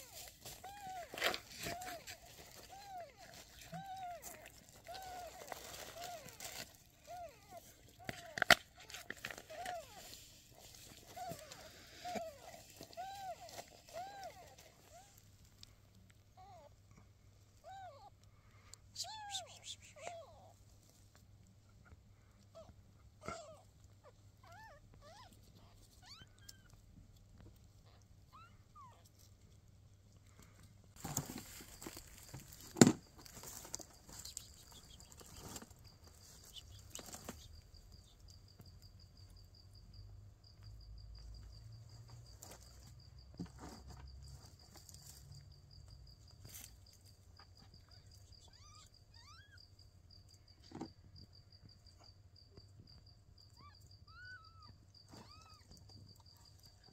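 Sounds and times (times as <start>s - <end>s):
knocks and rustles of handling: 0.0s - 15.8s, 30.9s - 37.5s
kittens mewing: 0.0s - 20.6s, 21.7s - 26.8s, 27.4s - 29.3s, 47.4s - 49.6s, 53.5s - 56.8s.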